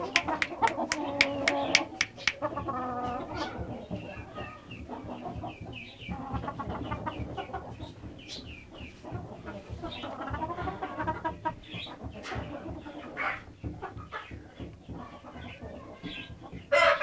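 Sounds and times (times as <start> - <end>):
high chirping calls: 0.0 - 4.8
chickens clucking: 0.0 - 17.0
sharp clicks: 0.1 - 2.4.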